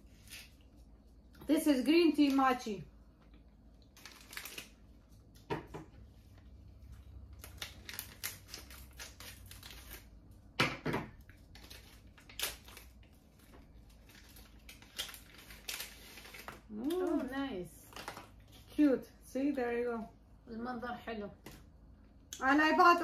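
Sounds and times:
plastic wrapper crinkling: 3.4 - 5.5, 6.4 - 10.5, 11.2 - 18.8.

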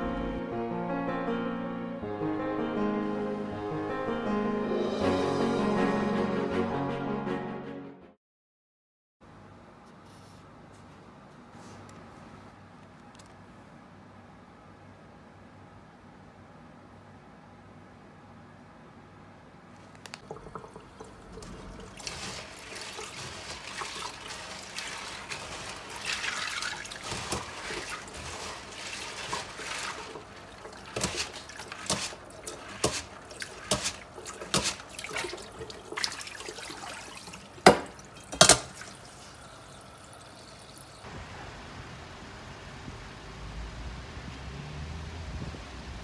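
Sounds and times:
tap water running over beans: 20.1 - 41.1.

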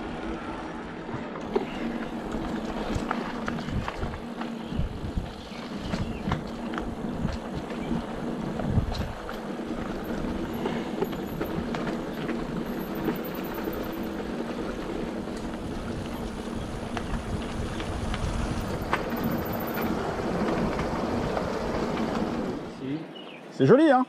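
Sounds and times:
tyre noise on dirt trail: 0.0 - 23.6
bike rattling clicks and knocks: 1.4 - 22.4
wind on microphone: 2.1 - 11.8, 15.5 - 22.7.

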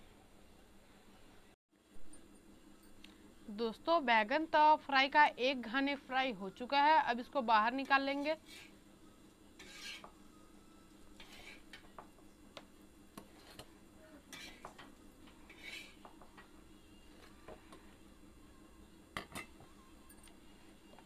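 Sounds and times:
faint steady hum: 0.0 - 21.0
steel spatula scraping iron pan: 8.4 - 8.8, 9.6 - 10.1, 11.2 - 11.8, 14.3 - 14.7, 15.4 - 16.0.

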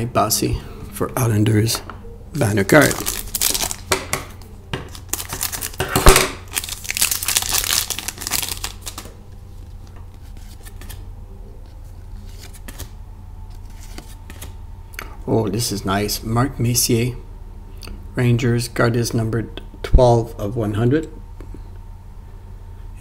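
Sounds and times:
faint steady hum: 0.0 - 23.0
card pack wrapper tearing: 2.7 - 3.9, 4.9 - 9.1.

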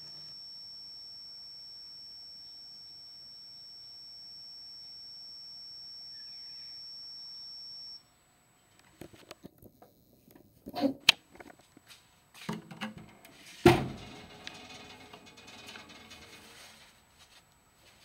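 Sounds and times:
tumble dryer buzzer beep: 0.0 - 8.0
door thump: 13.6 - 14.1
dryer door clicks and knocks: 13.7 - 14.1.

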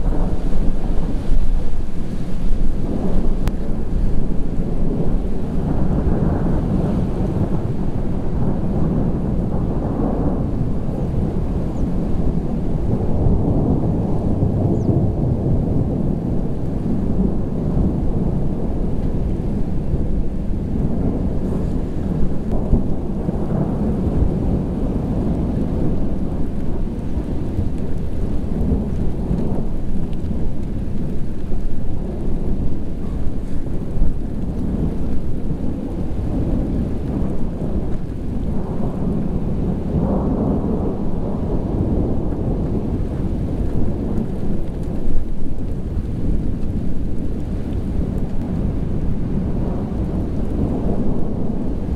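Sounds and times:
thunder rumbling: 0.0 - 51.9.

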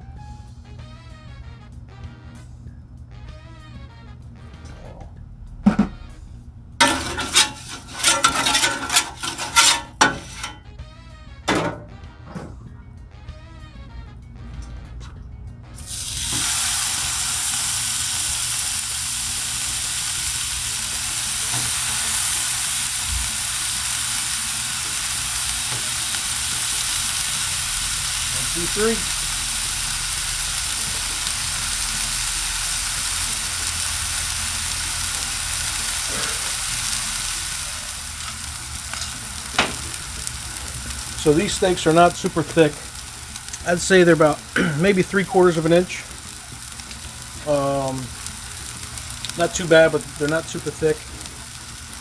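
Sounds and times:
steaks sizzling on a griddle: 6.8 - 10.7, 15.8 - 52.0.

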